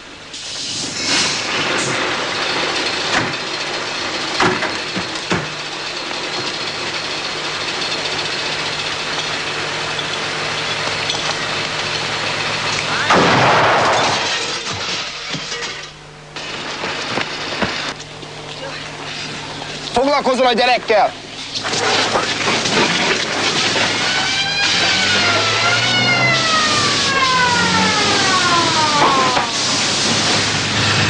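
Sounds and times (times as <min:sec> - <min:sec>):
firecrackers exploding: 0:00.4 - 0:03.4, 0:12.8 - 0:15.6, 0:16.3 - 0:18.0, 0:21.6 - 0:31.0
vehicle engine running: 0:01.3 - 0:31.0
rushing noise: 0:21.4 - 0:31.0.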